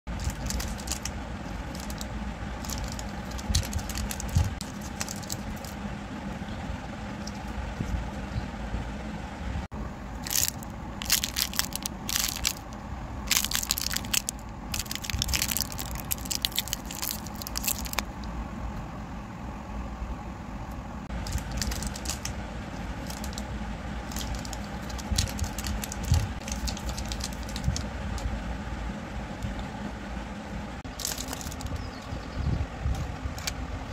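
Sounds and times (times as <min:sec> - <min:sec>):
low background hum: 0:00.0 - 0:33.9
plastic candy wrappers crinkling: 0:00.1 - 0:05.8, 0:10.2 - 0:18.0, 0:21.2 - 0:22.3, 0:22.9 - 0:27.9, 0:30.9 - 0:31.8.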